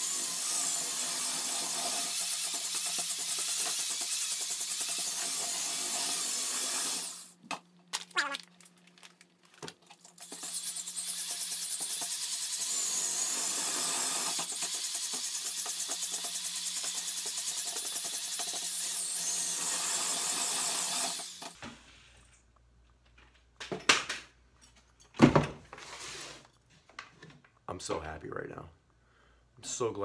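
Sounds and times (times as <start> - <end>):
power drill mixer whirring: 0.0 - 7.3, 10.2 - 21.6.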